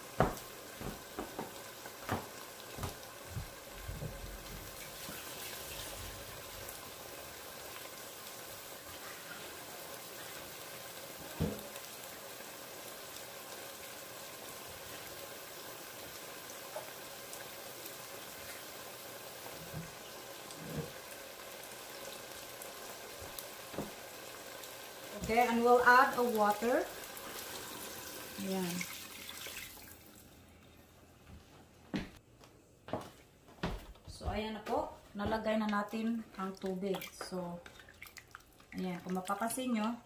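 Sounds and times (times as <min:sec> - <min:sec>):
food sizzling in a pot: 0:00.0 - 0:30.4.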